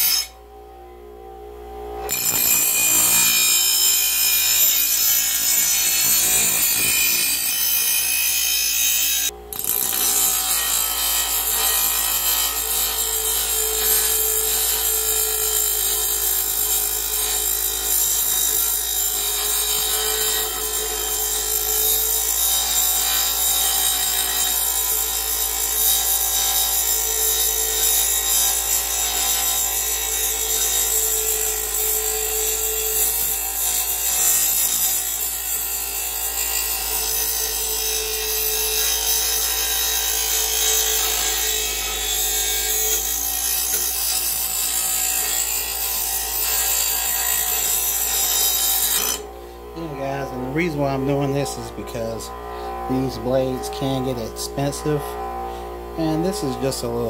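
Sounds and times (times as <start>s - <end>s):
grinder grinding metal blade: 0.0s - 0.4s, 2.0s - 57.0s.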